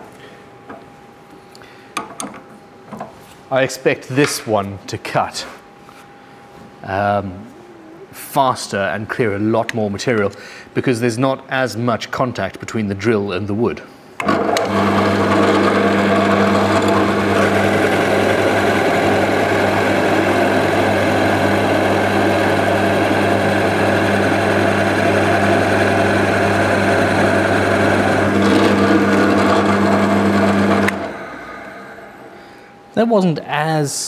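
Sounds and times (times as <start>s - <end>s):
drill bit cutting wood: 14.2s - 32.2s
drill press spinning down: 14.2s - 32.4s
drill press motor hum: 14.2s - 32.6s.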